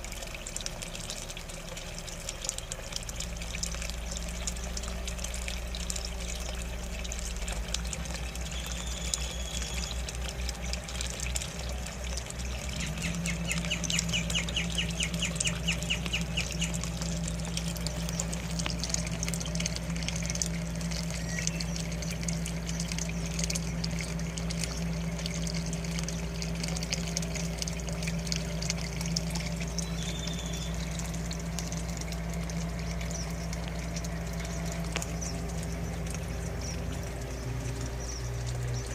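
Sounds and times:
low hum: 0.0 - 38.9
water trickling: 0.0 - 38.9
rapid bird trill: 8.5 - 10.1, 12.5 - 16.9, 21.1 - 23.8, 29.7 - 31.1
birds calling: 12.4 - 18.8, 21.0 - 26.4, 29.6 - 31.8, 32.8 - 38.9.

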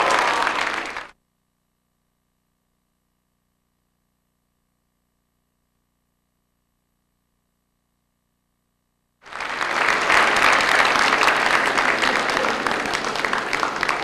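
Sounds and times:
audience applause: 0.0 - 1.1, 9.2 - 14.0.

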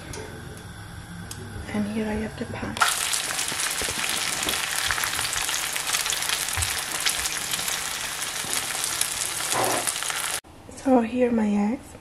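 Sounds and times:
eggs sizzling in a frying pan: 2.8 - 10.4.

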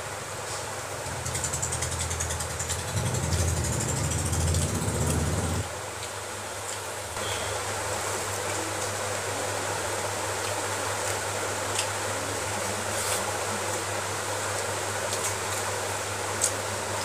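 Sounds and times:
low hum: 1.0 - 5.7.

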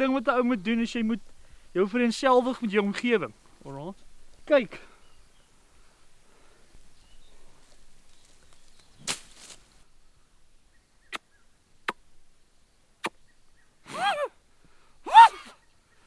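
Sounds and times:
person grunting or sighing: 13.9 - 14.3.

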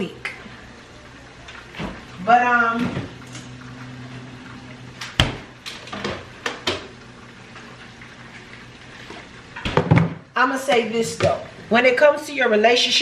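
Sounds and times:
low steady hum: 0.0 - 12.8.

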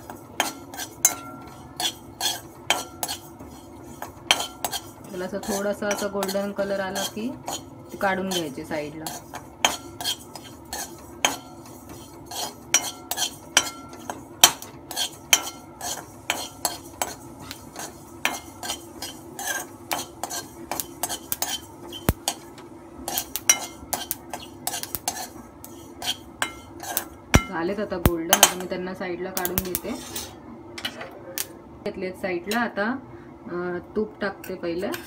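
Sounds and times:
metal spoon scraping a pan: 0.0 - 22.5, 23.1 - 27.6, 29.5 - 30.4, 34.8 - 35.0.

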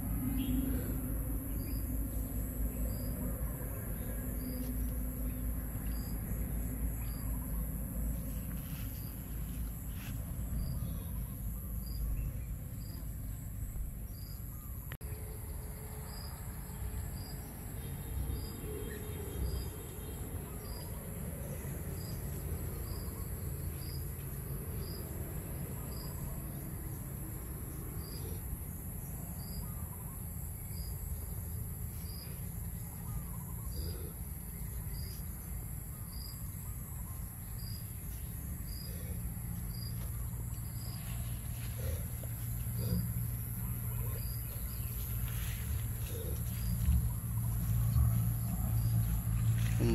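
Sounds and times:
insect chirp: 0.0 - 49.9
low background rumble: 0.0 - 49.9
insects buzzing: 15.1 - 49.9.

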